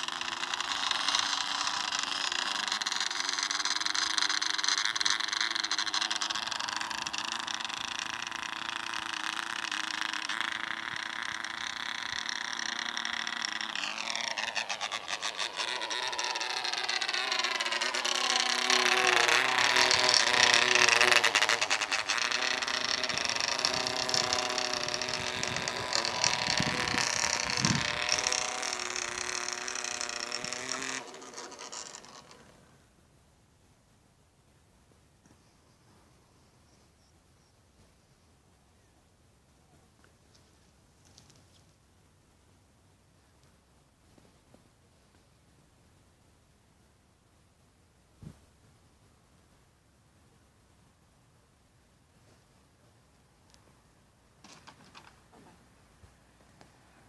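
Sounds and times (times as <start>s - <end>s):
model airplane motor whining: 0.0s - 32.8s, 54.4s - 55.6s.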